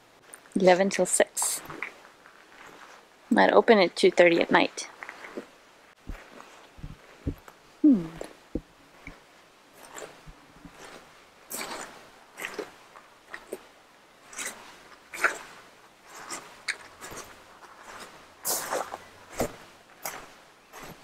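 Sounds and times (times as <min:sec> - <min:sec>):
footsteps crunching on gravel: 0:01.6 - 0:03.0, 0:04.9 - 0:07.5, 0:16.1 - 0:21.0.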